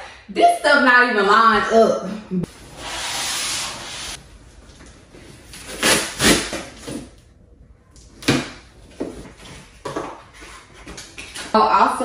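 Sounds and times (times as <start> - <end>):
blade cutting packing tape: 5.6 - 6.7.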